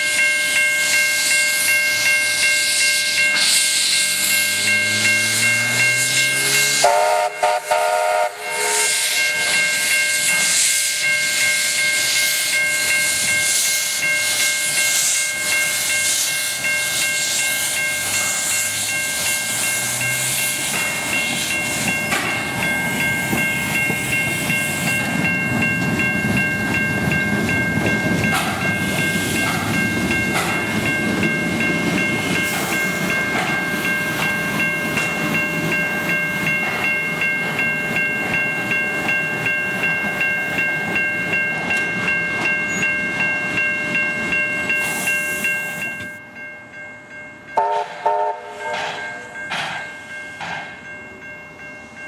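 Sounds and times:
steam locomotive hissing: 0.0s - 46.2s, 47.6s - 52.0s
level crossing bells ringing: 0.0s - 52.0s
train wheels rumbling: 0.0s - 52.0s
steam train whistle: 5.2s - 11.0s, 47.6s - 49.4s.

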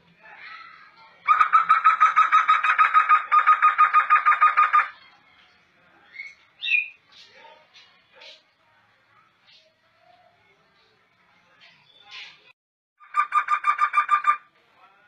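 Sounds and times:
bird singing rapid notes: 1.3s - 5.0s, 6.0s - 8.5s.

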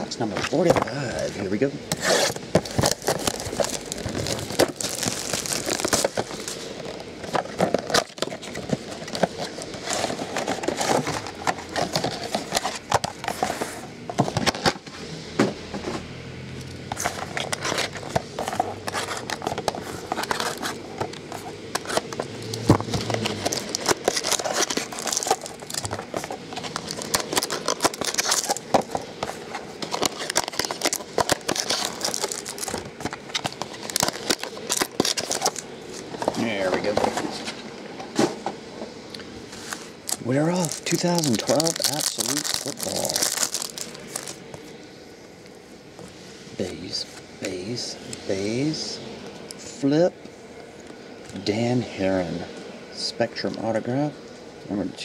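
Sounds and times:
plastic wrap crinkling and tearing: 1.9s - 13.3s, 17.0s - 35.7s, 39.6s - 44.5s.

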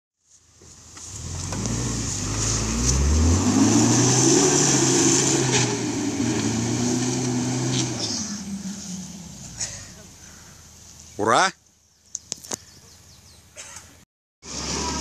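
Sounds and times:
suv engine revving in mud: 0.9s - 10.4s, 14.4s - 15.0s.

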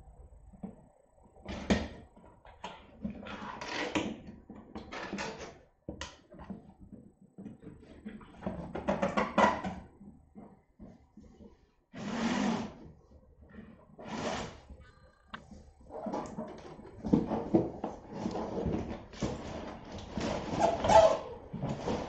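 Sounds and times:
cardboard scraping on floor: 12.0s - 12.9s, 13.5s - 14.7s, 15.9s - 22.0s.

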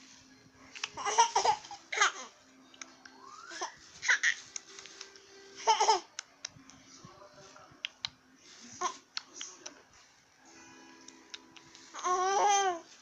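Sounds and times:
baby giggling: 1.0s - 2.3s.

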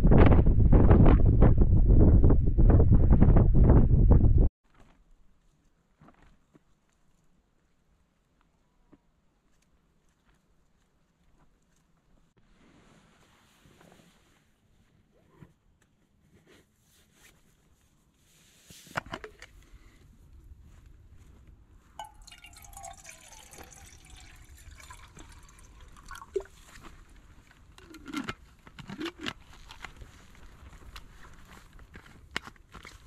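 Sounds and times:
water pouring into metal mug: 22.0s - 26.8s.

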